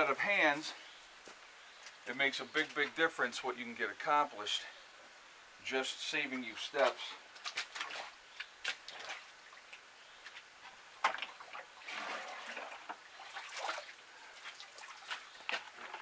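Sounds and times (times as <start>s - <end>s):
muddy water splashing: 6.8s - 16.0s.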